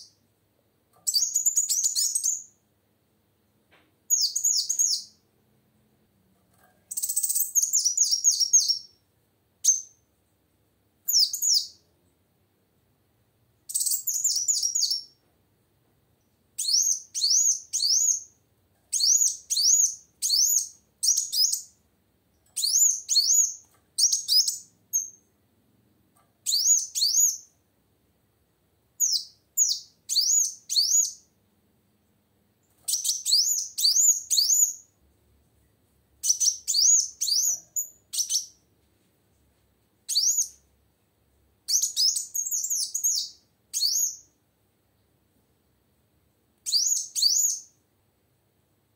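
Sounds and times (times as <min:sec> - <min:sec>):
sunbird chirping song: 0:01.0 - 0:02.6, 0:04.1 - 0:05.2, 0:06.9 - 0:09.0, 0:09.6 - 0:10.1, 0:11.0 - 0:11.9, 0:13.6 - 0:15.2, 0:16.2 - 0:21.8, 0:22.5 - 0:25.4, 0:26.4 - 0:27.6, 0:29.0 - 0:31.4, 0:32.7 - 0:35.0, 0:36.2 - 0:38.6, 0:40.1 - 0:40.6, 0:41.7 - 0:44.4, 0:46.6 - 0:47.8.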